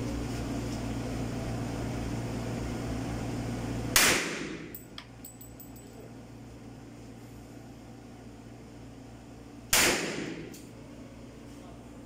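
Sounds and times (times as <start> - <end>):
steady low hum: 0.0 - 12.0
pistol shot: 4.0 - 4.7, 9.7 - 10.5.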